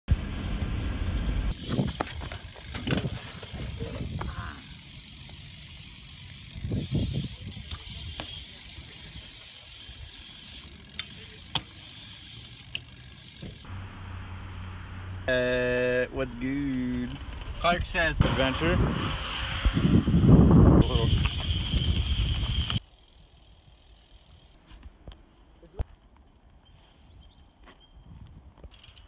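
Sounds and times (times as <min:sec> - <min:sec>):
bike tyres rolling with rattling: 0:00.1 - 0:13.7, 0:16.7 - 0:17.7, 0:20.8 - 0:24.8, 0:28.6 - 0:29.0.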